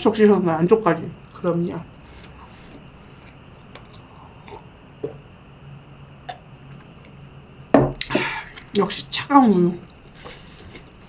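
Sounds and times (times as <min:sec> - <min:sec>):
person gulping and swallowing: 0:03.6 - 0:05.2, 0:06.2 - 0:06.4.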